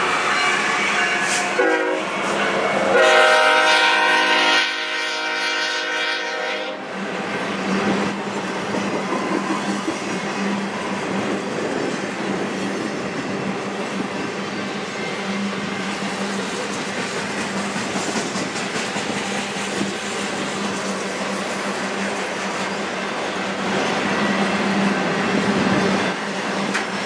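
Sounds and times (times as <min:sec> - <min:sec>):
locomotive horn blasts: 0:00.0 - 0:06.9
freight train cars rumbling: 0:00.0 - 0:27.0.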